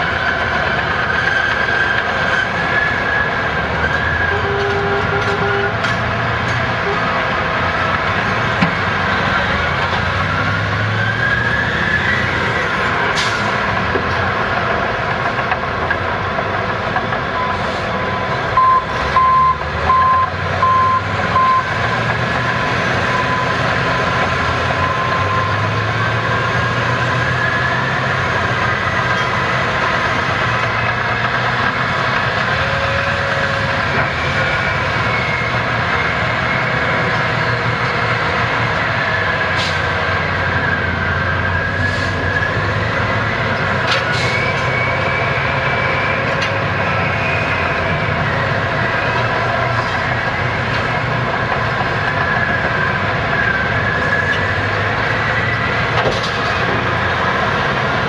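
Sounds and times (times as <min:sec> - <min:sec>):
diesel truck engines under load: 0:00.0 - 0:58.0
reversing alarm beeping: 0:17.3 - 0:22.2, 0:22.9 - 0:25.8.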